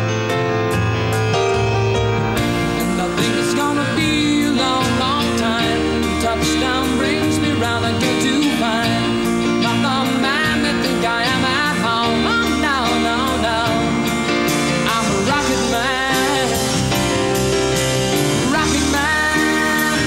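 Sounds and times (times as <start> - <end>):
rock song with singing: 2.3 - 20.0.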